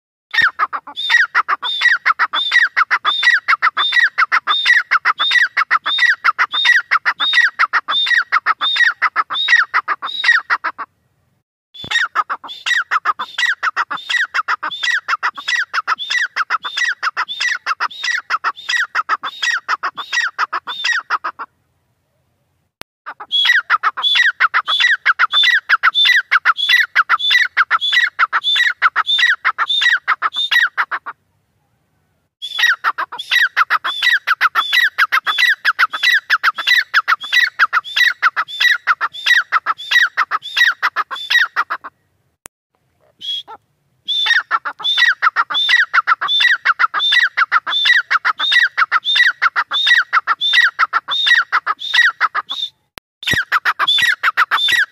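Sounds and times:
francolin calling: 0.4 - 10.7, 11.8 - 21.3, 23.1 - 30.9, 43.1 - 54.9.

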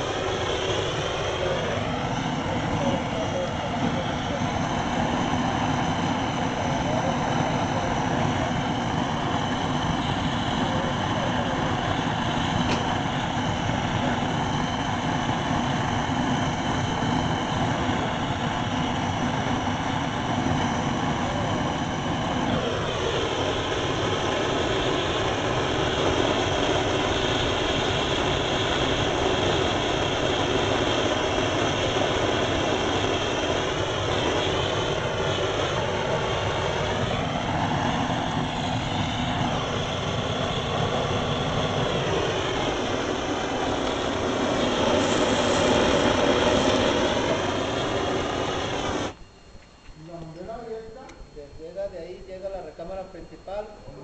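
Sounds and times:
gas torch burning: 0.0 - 51.2.

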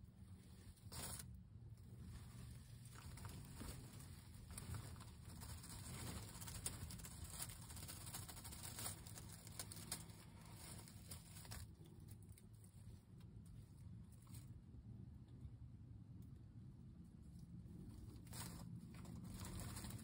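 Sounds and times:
dry pine straw crackling: 2.0 - 13.2, 18.2 - 20.0.

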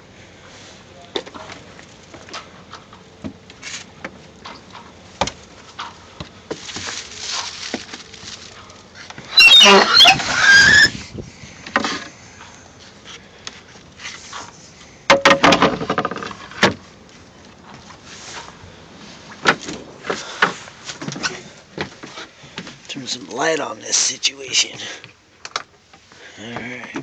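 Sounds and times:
loud squeaking scrapes: 9.3 - 11.0.

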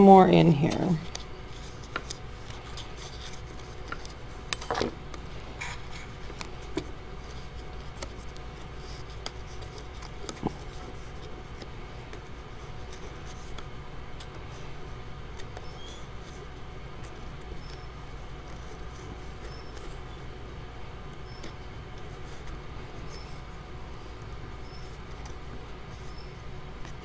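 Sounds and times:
paper scratching and rustling: 1.0 - 20.4, 21.0 - 27.0.

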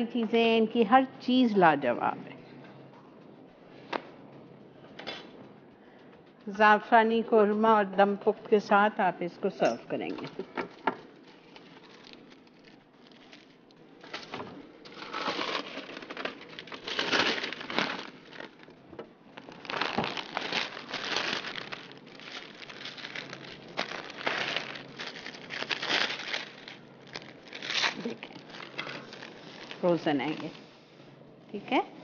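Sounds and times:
plastic packaging crinkling: 11.2 - 30.6.

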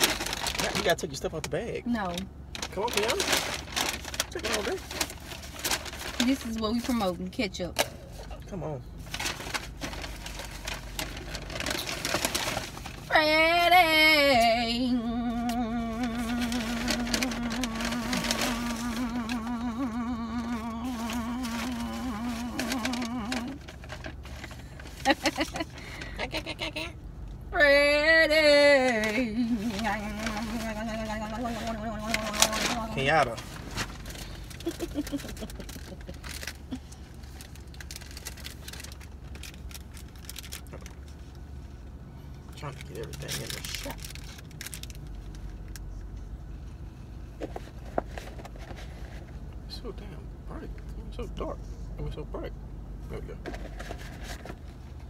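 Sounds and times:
paper bags and wrappers rustling: 0.0 - 7.2, 9.0 - 13.1, 15.2 - 26.5, 28.9 - 41.3, 42.6 - 45.7, 47.5 - 49.4, 53.4 - 55.0
low hum inside car: 0.0 - 55.0.

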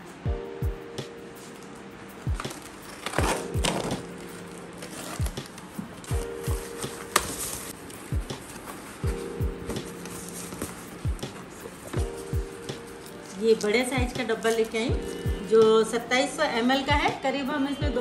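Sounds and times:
music with deep drum beat: 0.3 - 1.2, 5.2 - 7.2, 8.1 - 13.0, 13.9 - 14.3, 14.9 - 15.8, 16.9 - 17.2
cardboard flaps pulled open: 2.4 - 7.8.

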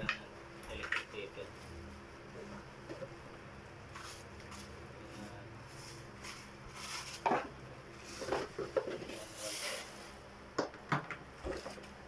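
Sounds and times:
faint steady hum: 0.0 - 12.0
plastic wrapping crinkling: 5.7 - 10.2.

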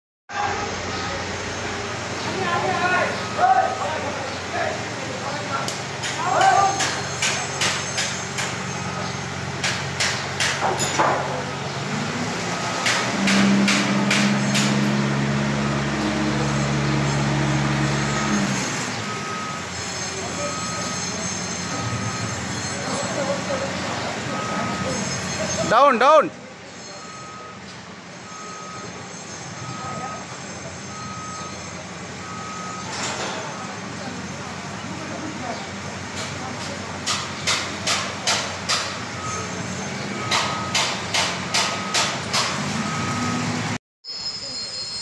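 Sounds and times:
engine humming: 0.4 - 43.8
hammer blows: 5.7 - 11.5, 12.6 - 18.8, 37.0 - 42.7
machine engine running: 11.5 - 25.7
motion alarm beeping: 16.2 - 26.2, 26.8 - 33.7, 39.1 - 42.2, 42.9 - 43.5.

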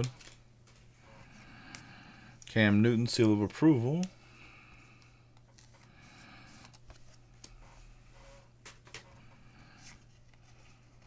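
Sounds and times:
trading cards rustling and clicking: 0.0 - 0.9, 1.6 - 7.9.

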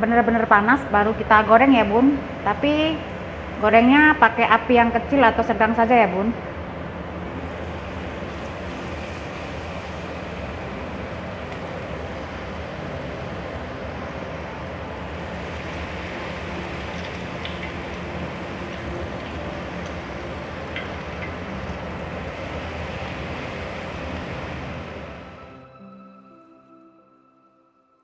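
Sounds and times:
batter deep-frying in hot oil: 7.3 - 25.4.

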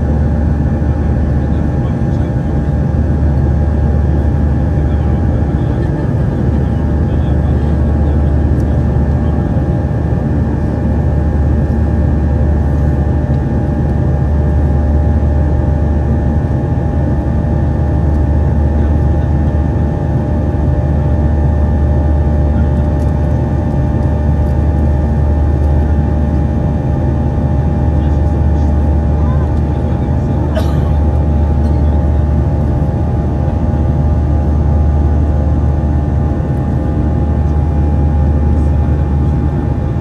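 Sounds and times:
jet cabin engine drone: 0.0 - 40.0.

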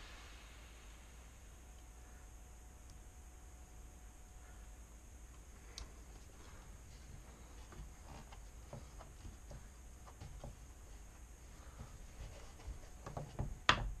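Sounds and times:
hands rubbing grip tape: 6.9 - 13.6.

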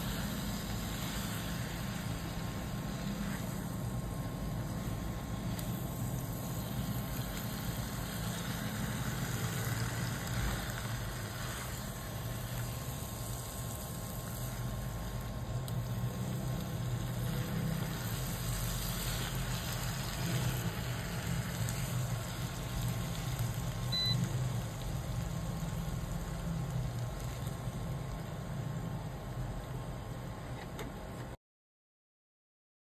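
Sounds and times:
steady low hum: 0.0 - 31.4
high beep: 23.9 - 24.2.

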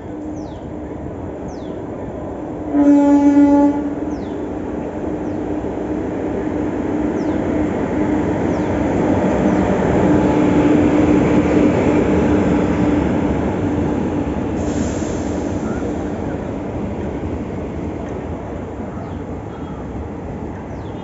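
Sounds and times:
train wheels rumbling on rail: 0.0 - 21.0.

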